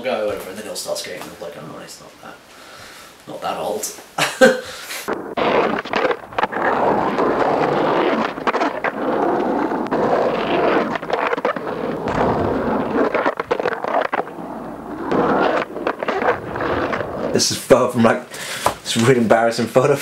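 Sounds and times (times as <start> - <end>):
skateboard wheels rolling on pavement: 5.1 - 19.1
skateboard clacking: 6.8 - 17.4.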